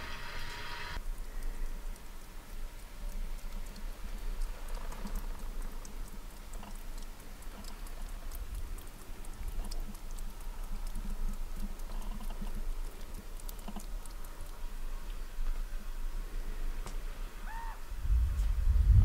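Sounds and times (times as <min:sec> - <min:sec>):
low steady rumble: 0:00.0 - 0:19.0
water drops on tent roof: 0:01.0 - 0:15.6.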